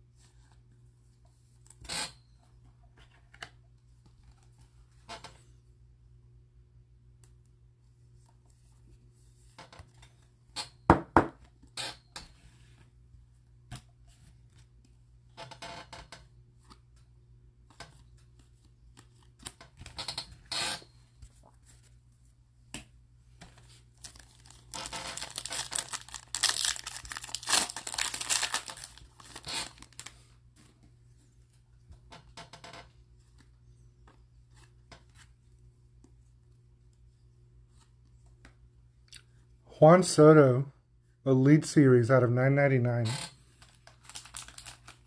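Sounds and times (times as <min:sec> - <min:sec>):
trading cards clicking and shuffling: 0:22.7 - 0:30.1
foil pack tearing and crinkling: 0:24.0 - 0:30.1, 0:43.6 - 0:45.0.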